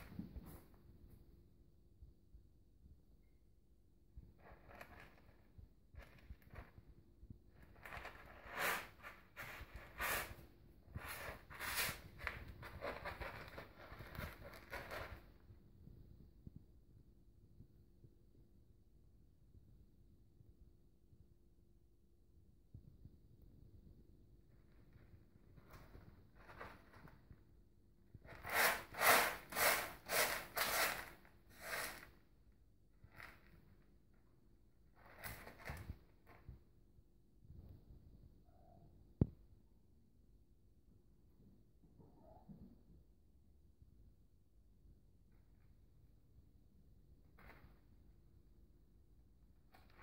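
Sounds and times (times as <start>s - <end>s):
cat scratching in litter: 4.4s - 15.5s, 25.5s - 27.4s, 28.2s - 32.2s, 35.0s - 36.0s, 49.7s - 50.0s.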